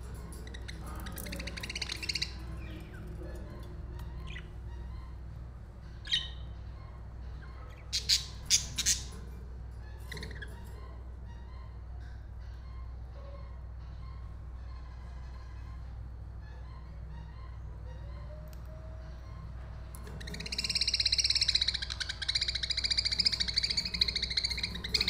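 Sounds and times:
steady low hum: 0.0 - 25.0
budgerigars chirping: 0.4 - 5.2, 6.0 - 6.6, 7.4 - 9.2, 20.0 - 25.0.

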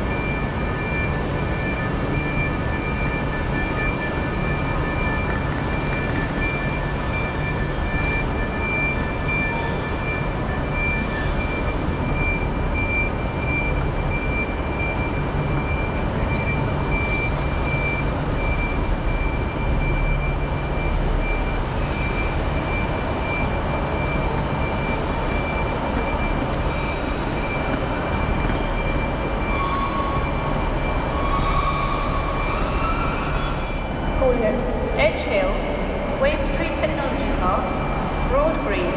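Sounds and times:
trains rumbling: 0.0 - 38.9.

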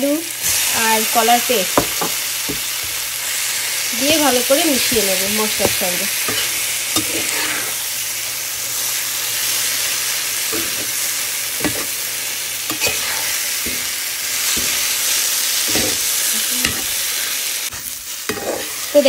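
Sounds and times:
paste sizzling in a pan: 0.0 - 19.0
spatula scraping pan: 1.6 - 7.9, 11.6 - 12.0, 12.6 - 19.0.

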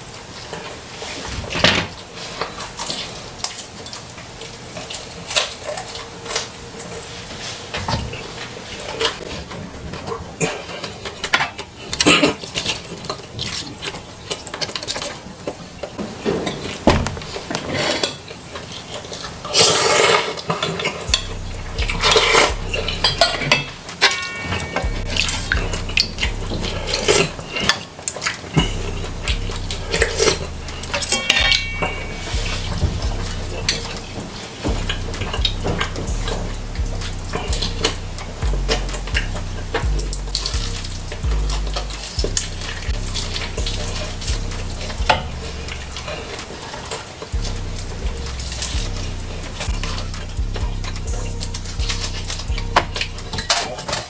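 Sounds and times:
chewing and mouth sounds: 16.6 - 54.0
low hum: 21.1 - 27.7, 28.6 - 53.6
spoon and dishes clinking: 22.0 - 36.4.

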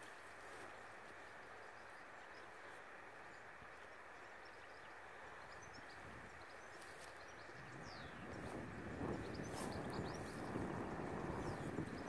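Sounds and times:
low outdoor hiss: 0.0 - 12.0.

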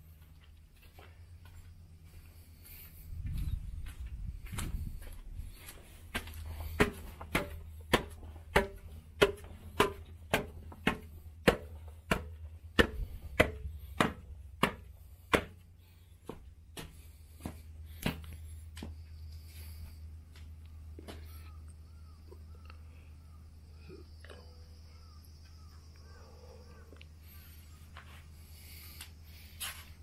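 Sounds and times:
footsteps on concrete: 0.0 - 21.3, 27.4 - 30.0.

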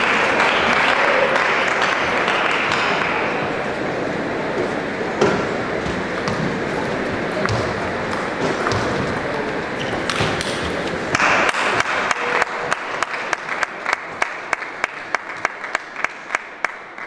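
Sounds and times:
crowd cheering: 0.0 - 4.3, 10.8 - 17.0.

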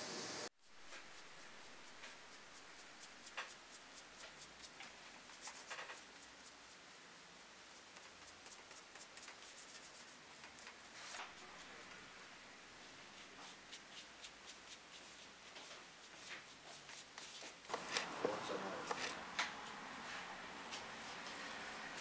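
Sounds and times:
brush scrapes: 0.6 - 7.0, 7.7 - 11.6, 13.1 - 20.3
glue brush rubbing and clicking: 0.7 - 6.8, 7.7 - 11.2, 16.1 - 18.2, 18.8 - 19.2.

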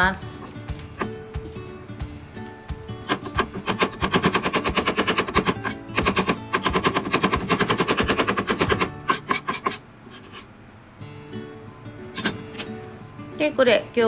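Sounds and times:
knife chopping on plastic board: 3.1 - 9.8.

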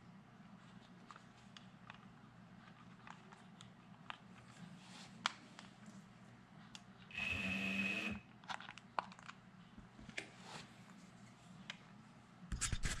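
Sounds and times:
light clicks and crinkling: 0.6 - 7.1, 8.4 - 9.4.

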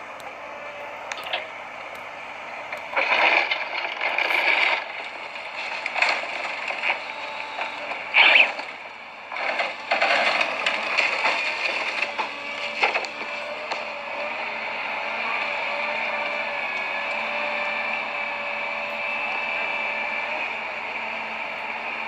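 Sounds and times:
excavator diesel engine and hydraulics: 0.0 - 22.0
metal crunching and scraping: 2.6 - 14.4.

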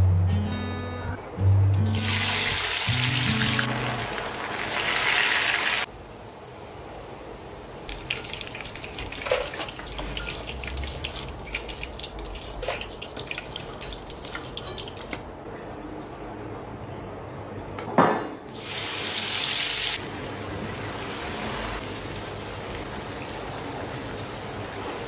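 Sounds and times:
deep-frying oil bubbling hiss: 1.9 - 15.2, 18.5 - 25.0
oil sizzling with crackles: 2.0 - 15.3, 18.5 - 25.0.

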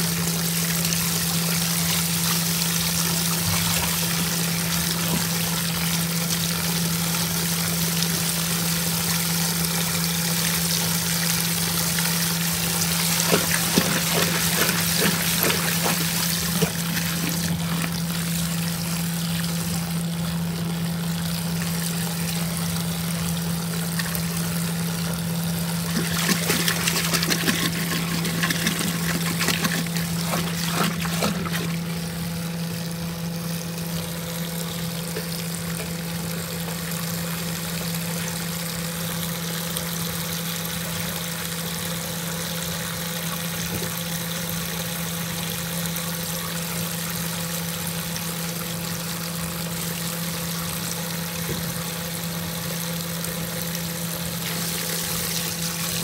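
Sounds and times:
water splashing into washing machine: 0.0 - 39.5, 43.0 - 56.0
low steady hum: 0.0 - 40.2.

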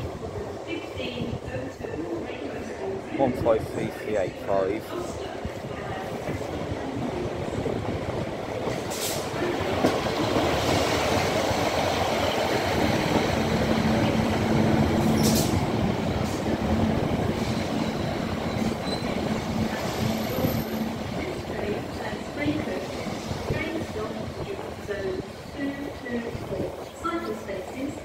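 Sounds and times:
diesel train rumbling past: 0.0 - 28.0.

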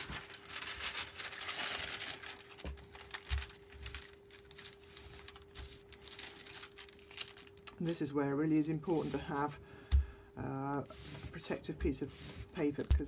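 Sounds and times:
paper rustling under an iron: 0.0 - 8.1, 10.8 - 13.0.

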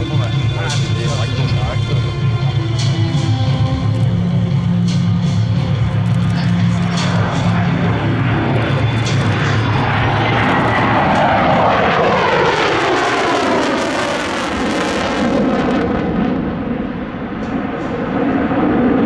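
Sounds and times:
fighter jet passing: 0.0 - 19.0.

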